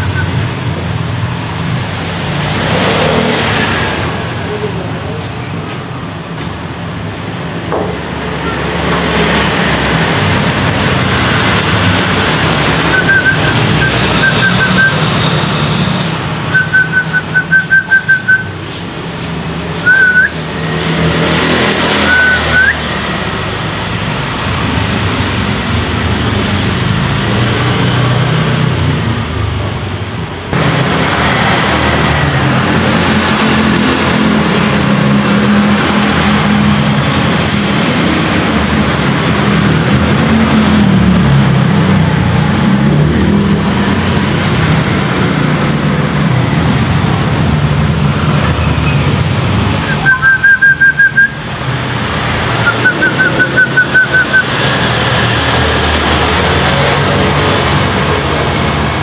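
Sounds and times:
loud background noise with hum: 0.0 - 59.0
whistled notes: 12.8 - 15.2, 16.5 - 18.6, 19.8 - 20.4, 22.0 - 22.9, 49.8 - 51.4, 52.6 - 54.6.

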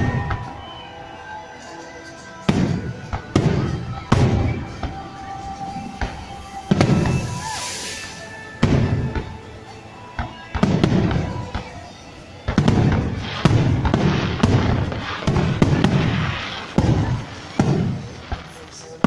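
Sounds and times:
firework crackling: 0.0 - 19.0
firework shells booming: 6.0 - 9.4, 12.5 - 19.0.

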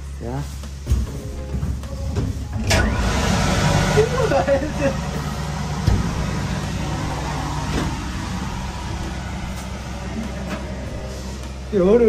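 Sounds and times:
low fan hum: 0.7 - 12.0
rush of blown air: 2.8 - 11.7.

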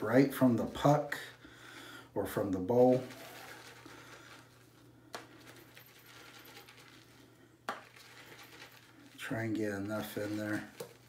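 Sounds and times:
shaving brush bristly scrubbing: 9.1 - 11.0.

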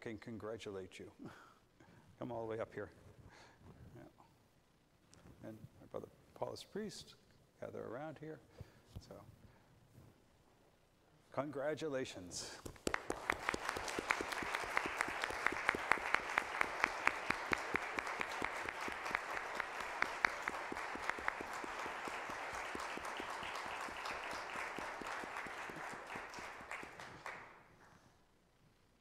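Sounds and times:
sharp individual claps: 12.6 - 27.6
congregation applauding: 12.7 - 27.7.

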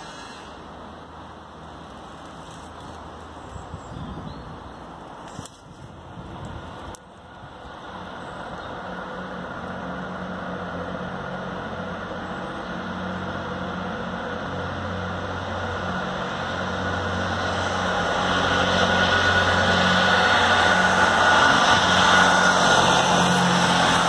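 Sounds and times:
train hiss: 0.0 - 1.4
train engines droning: 0.0 - 24.0.

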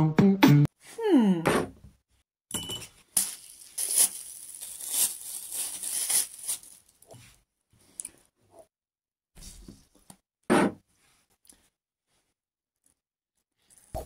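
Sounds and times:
plastic bag crinkling: 3.1 - 7.1.

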